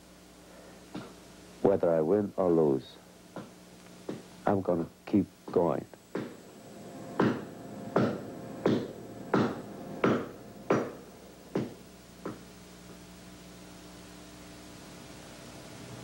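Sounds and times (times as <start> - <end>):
low steady hum: 0.0 - 16.0
sharp ringing knocking strikes: 7.1 - 12.4.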